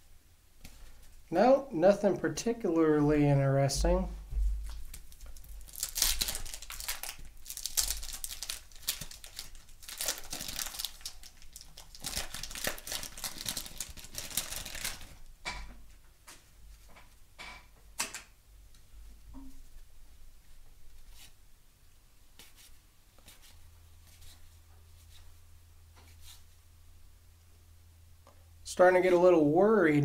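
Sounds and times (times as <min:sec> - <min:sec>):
wax paper wrapper crinkling tearing: 0:04.6 - 0:15.2.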